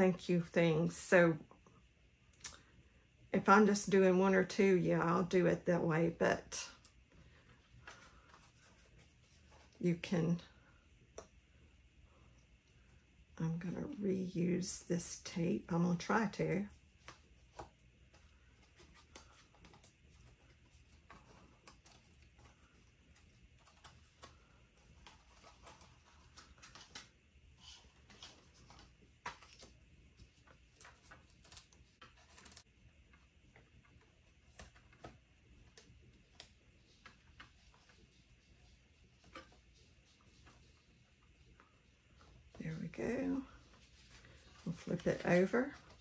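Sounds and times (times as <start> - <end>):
paper and tape rustling: 16.5 - 32.8, 43.2 - 46.0.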